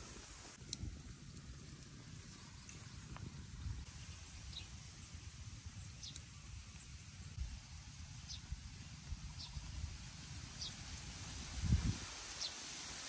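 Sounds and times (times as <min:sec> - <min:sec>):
wind buffeting microphone: 0:11.2 - 0:12.3.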